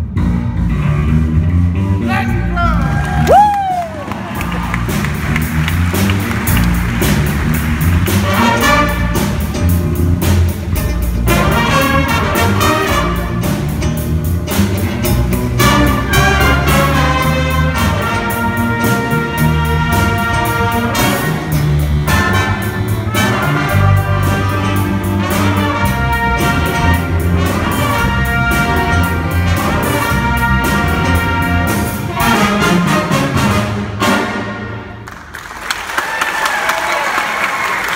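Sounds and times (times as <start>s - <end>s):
jazz band playing: 0.0s - 35.4s
audience applause: 2.8s - 8.5s, 35.0s - 37.9s.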